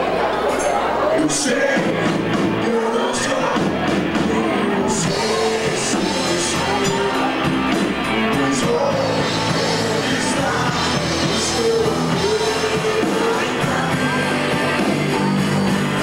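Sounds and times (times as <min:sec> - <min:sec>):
rock band playing live: 0:00.0 - 0:16.0
person singing: 0:01.2 - 0:16.0.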